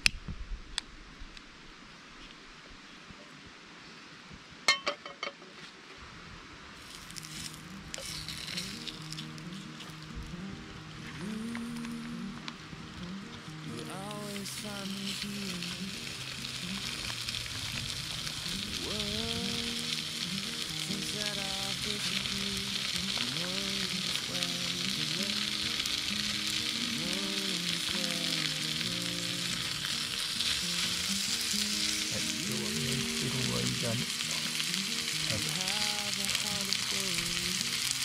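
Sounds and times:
meat sizzling in a pan: 6.8s - 10.2s, 13.9s - 38.0s
background music: 7.2s - 38.0s.

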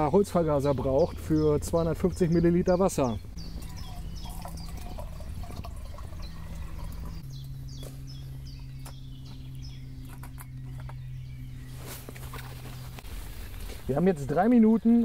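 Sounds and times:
birds chirping: 0.0s - 15.0s
low hum: 0.3s - 13.9s
water pouring into metal mug: 3.6s - 7.2s.

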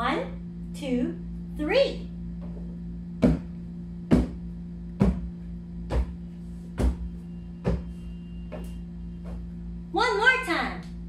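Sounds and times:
steady low hum: 0.0s - 11.0s
feet stomping on floor mat: 3.2s - 3.5s, 4.1s - 4.4s, 5.0s - 9.5s.

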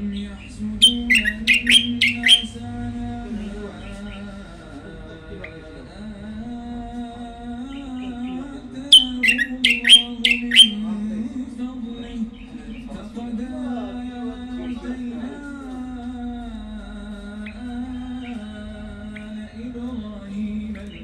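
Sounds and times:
songbird singing falling chirps: 0.0s - 4.7s, 5.3s - 11.1s, 17.2s - 21.0s.

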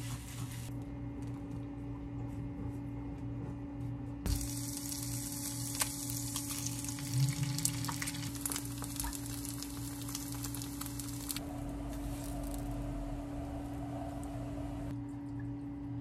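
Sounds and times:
steady low hum: 0.0s - 16.0s
onions sizzling in oil: 4.3s - 12.7s.

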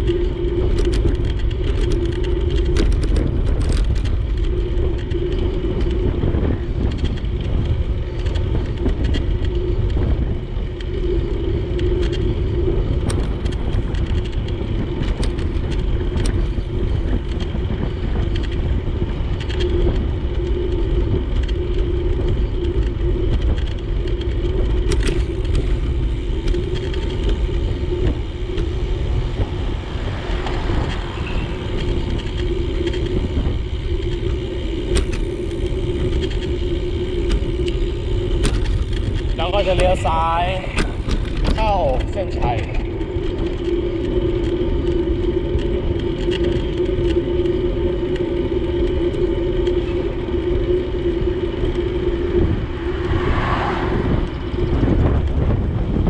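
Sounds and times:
road noise: 0.0s - 56.0s
wind buffeting microphone: 0.0s - 56.0s
steady hum: 16.0s - 56.0s.

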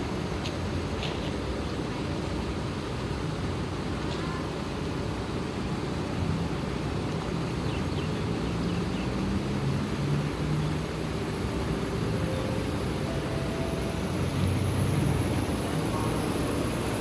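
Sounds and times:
diesel bus engine rumbling: 8.0s - 17.0s.

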